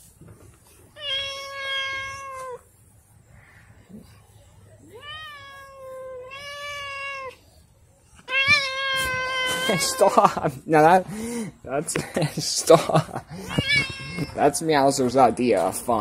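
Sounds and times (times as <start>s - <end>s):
cat yowling: 1.0s - 2.6s, 4.8s - 7.4s, 8.2s - 10.1s.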